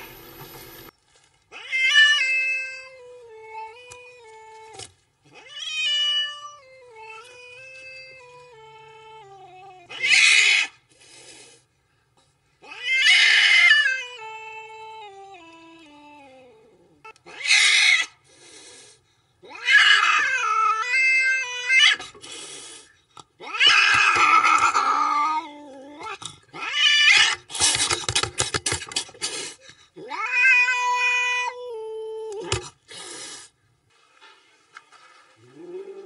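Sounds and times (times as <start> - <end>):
cat-like yowls: 9.9 - 10.8, 12.6 - 14.2, 16.8 - 18.2, 19.4 - 22.0, 23.4 - 27.5, 30.0 - 31.6.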